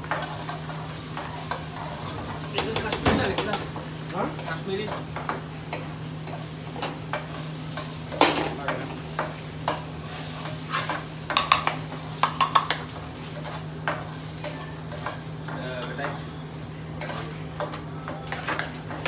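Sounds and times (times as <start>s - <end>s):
food sizzling: 0.0s - 19.0s
metal spoon scraping a wok: 0.1s - 3.0s, 13.3s - 16.4s, 17.0s - 19.0s.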